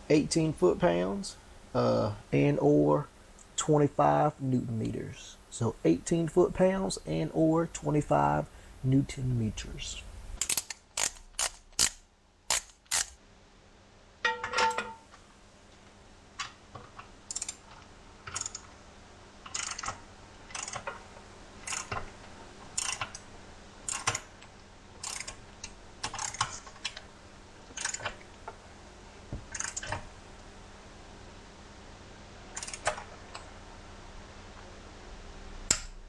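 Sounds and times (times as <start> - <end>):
torque wrench ratchet clicks: 10.4 - 13.2, 17.3 - 17.6, 18.4 - 18.6, 19.5 - 19.9, 20.5 - 20.8, 22.8 - 23.2, 23.9 - 24.2, 25.0 - 25.4
metal clack: 14.2 - 15.1.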